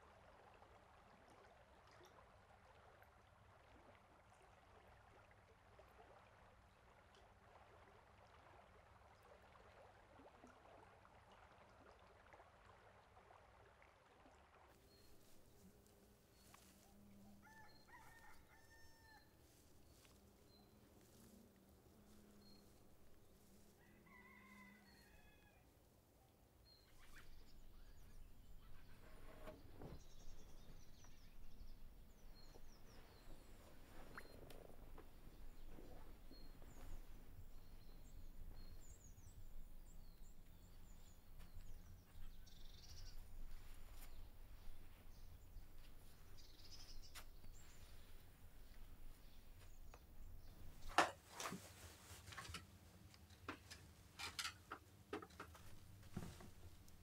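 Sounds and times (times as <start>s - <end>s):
faint bird calls: 14.8s - 21.3s.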